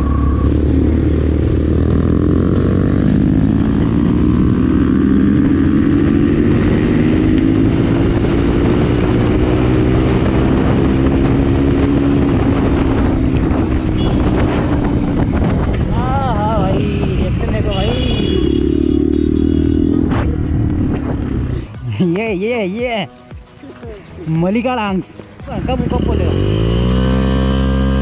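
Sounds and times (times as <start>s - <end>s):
low wind rumble: 0.0s - 18.5s
motorcycle engine accelerating: 0.0s - 21.7s, 25.1s - 28.0s.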